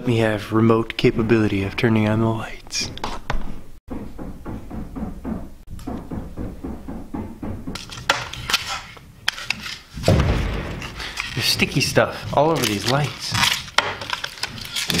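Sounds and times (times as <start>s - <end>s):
low thump: 3.9s - 7.8s, 10.0s - 11.2s
plastic packaging crackling: 10.9s - 15.0s.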